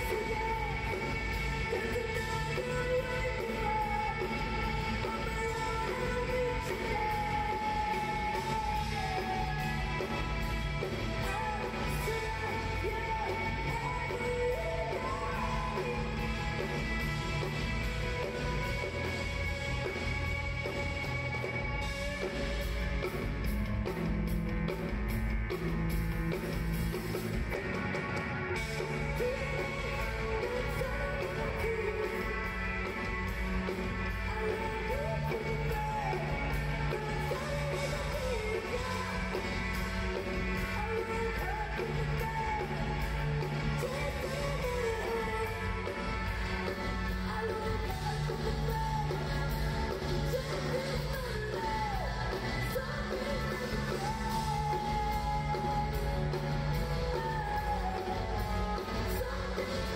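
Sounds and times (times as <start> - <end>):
woman singing: 0.0 - 22.0, 28.7 - 59.9
rock band playing: 0.0 - 59.9.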